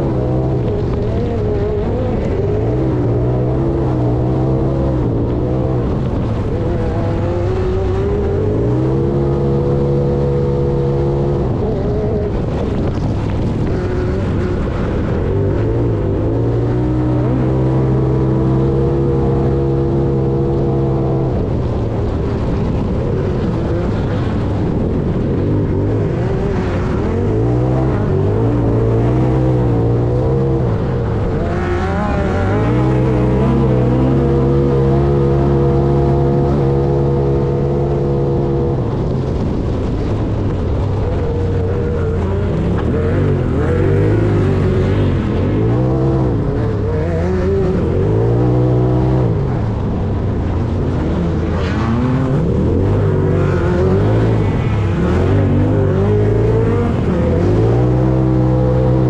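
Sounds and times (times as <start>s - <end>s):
road rumble and wind noise: 0.0s - 59.0s
vehicle engine revving: 0.0s - 59.0s.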